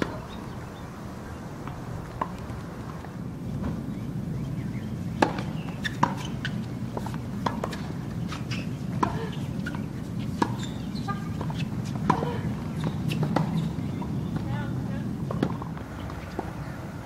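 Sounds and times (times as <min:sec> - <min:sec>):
tennis ball struck and bouncing: 0:05.2 - 0:08.0, 0:08.9 - 0:14.5.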